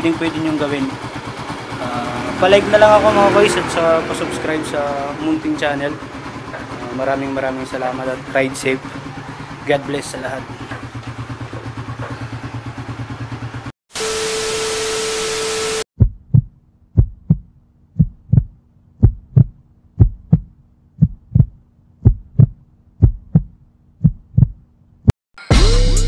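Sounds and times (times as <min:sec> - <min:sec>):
motorcycle engine idling: 0:00.0 - 0:13.7
heartbeat thumps: 0:16.0 - 0:24.6.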